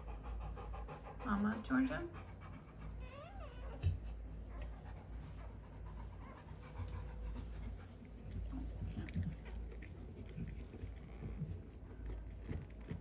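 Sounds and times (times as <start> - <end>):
dog panting: 0.0 - 13.0
dog whining: 2.8 - 4.8.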